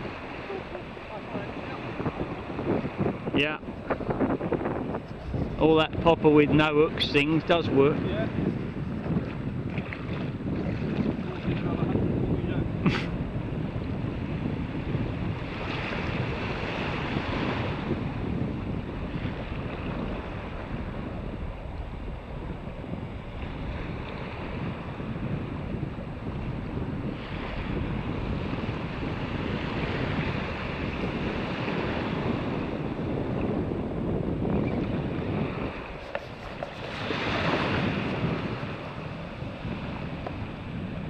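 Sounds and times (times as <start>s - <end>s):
small waves washing on sand: 0.0s - 41.0s
wind buffeting microphone: 0.0s - 41.0s.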